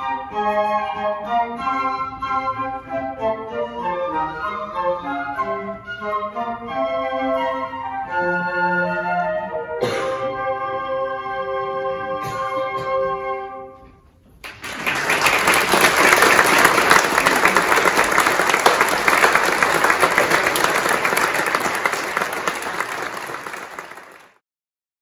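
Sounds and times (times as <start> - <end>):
congregation applauding: 14.4 - 24.4.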